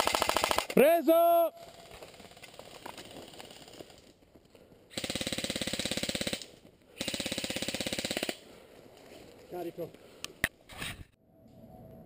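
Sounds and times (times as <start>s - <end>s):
airsoft gun firing full auto: 0.0s - 0.8s, 4.9s - 8.4s.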